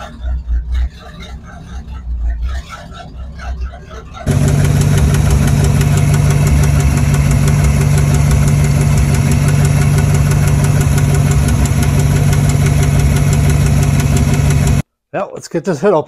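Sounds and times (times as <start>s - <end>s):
car engine idling: 4.1s - 14.8s
fast engine tapping: 4.2s - 14.8s.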